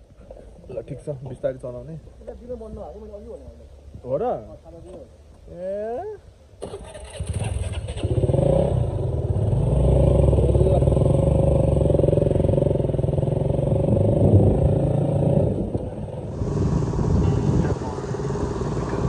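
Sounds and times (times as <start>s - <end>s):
motorcycle engine pulling away: 6.6s - 19.0s.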